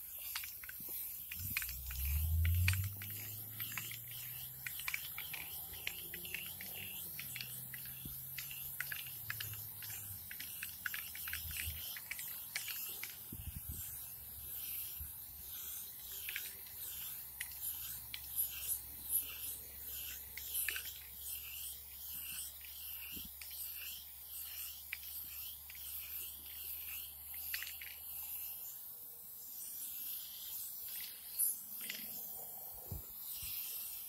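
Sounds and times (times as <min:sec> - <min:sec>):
handling clicks and scrapes: 0:00.0 - 0:26.0
spray paint can hissing: 0:00.0 - 0:34.0.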